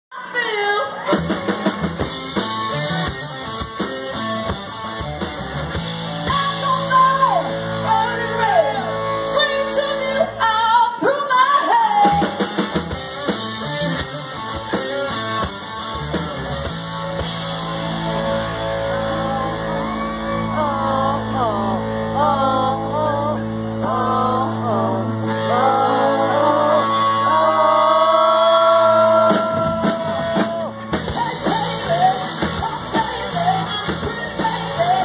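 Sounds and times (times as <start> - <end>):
electric guitars: 0.2 - 35.0
drum kit: 1.0 - 8.2, 11.8 - 20.0, 28.5 - 35.0
woman singing: 6.3 - 12.4, 20.4 - 29.9, 31.1 - 35.0.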